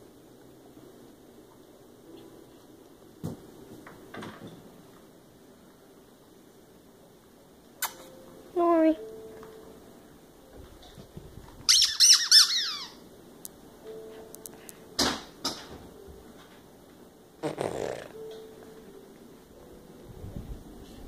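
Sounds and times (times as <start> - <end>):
squeaky toy squeaking: 11.7 - 13.0.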